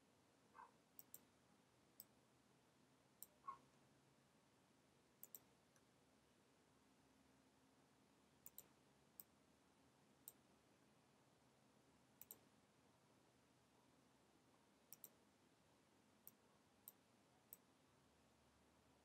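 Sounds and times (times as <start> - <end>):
faint room hiss: 0.0 - 19.0
mouse and keyboard clicks: 5.2 - 5.5, 8.4 - 8.7, 12.2 - 12.4, 14.9 - 15.2.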